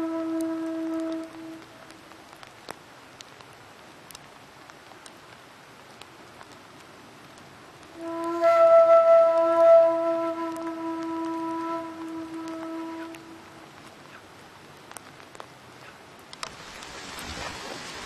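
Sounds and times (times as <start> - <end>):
flute-like whistled note: 0.0 - 1.6, 8.0 - 13.4
faint hiss: 0.0 - 18.0
light ticks: 0.3 - 8.4, 12.0 - 16.9.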